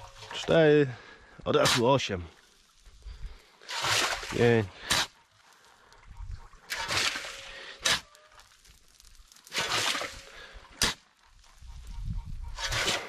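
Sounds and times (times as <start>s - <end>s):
shovel scraping into sand: 3.7s - 5.2s, 6.7s - 8.2s, 9.5s - 11.0s, 12.5s - 13.0s.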